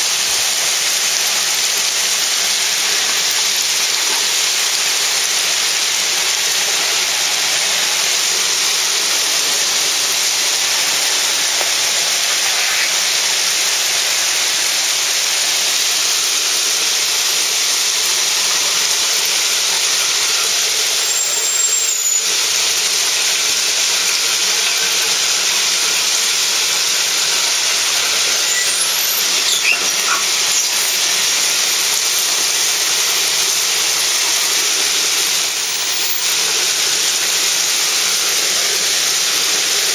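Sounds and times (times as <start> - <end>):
faint short squeals: 21.0 - 22.4, 28.2 - 31.1.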